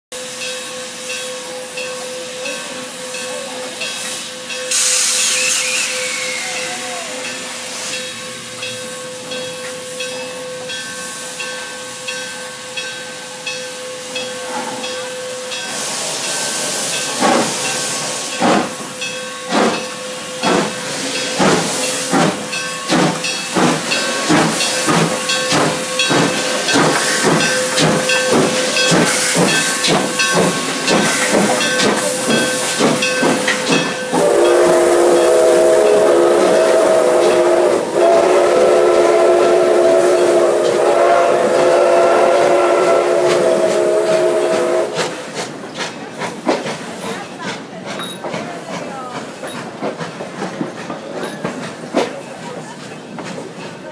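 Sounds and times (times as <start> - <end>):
steam locomotive hissing: 0.2 - 53.9
loud blast of escaping steam: 4.7 - 8.1, 15.7 - 18.9, 20.4 - 45.3.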